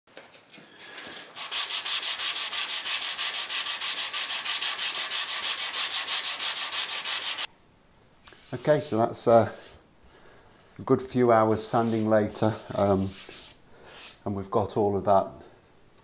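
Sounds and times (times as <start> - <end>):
sanding block strokes on wood: 1.3 - 7.5, 9.4 - 14.2.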